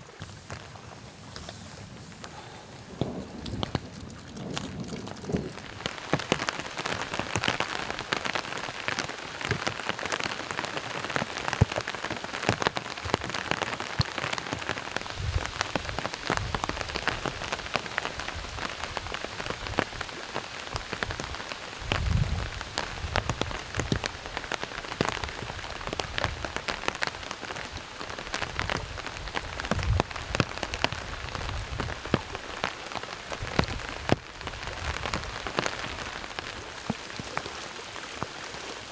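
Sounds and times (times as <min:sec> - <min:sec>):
heavy rain falling: 0:00.0 - 0:38.9
low thunder rumbles: 0:01.8 - 0:08.1, 0:21.8 - 0:23.9.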